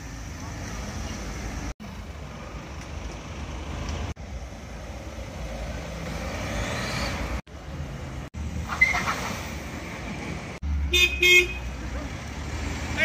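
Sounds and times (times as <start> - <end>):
cars driving past: 0.0 - 13.0
engine revving up: 5.6 - 7.4.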